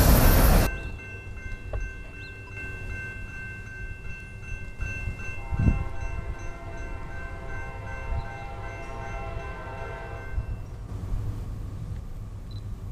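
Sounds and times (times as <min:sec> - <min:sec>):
distant train horn: 0:05.2 - 0:10.7.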